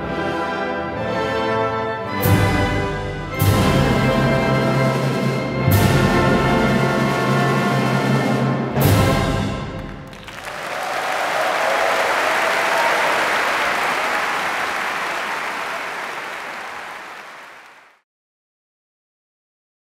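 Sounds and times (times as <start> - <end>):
audience applauding: 9.8 - 18.0.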